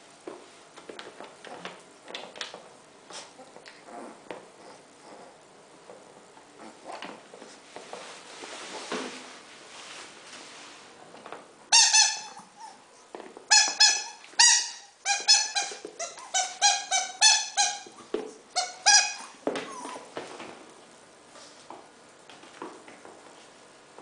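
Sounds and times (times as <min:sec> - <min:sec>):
faint scuffling: 0:05.8 - 0:11.5
squeaky toy squeaking: 0:11.7 - 0:12.8, 0:13.5 - 0:18.0, 0:18.6 - 0:20.0.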